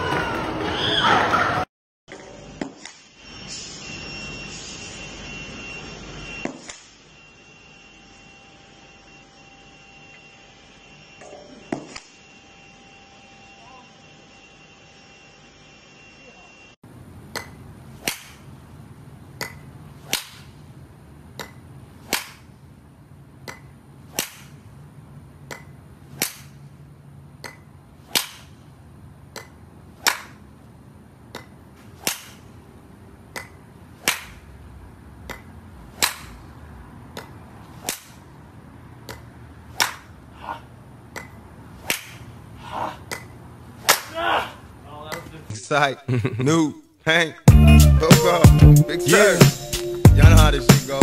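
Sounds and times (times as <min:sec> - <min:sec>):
golf club striking balls: 0:33.3 - 0:34.4.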